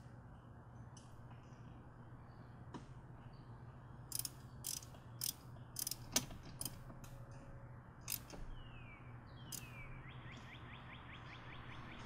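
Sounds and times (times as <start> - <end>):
ratchet wrench clicking: 4.1 - 6.8, 8.1 - 8.4.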